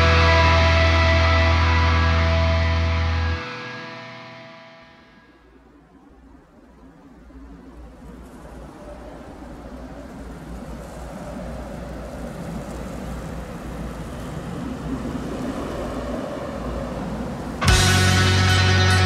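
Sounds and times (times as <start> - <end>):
rumbling drone: 0.0 - 4.7, 17.6 - 19.0
metal band with distorted guitars: 0.0 - 5.2, 17.6 - 19.0.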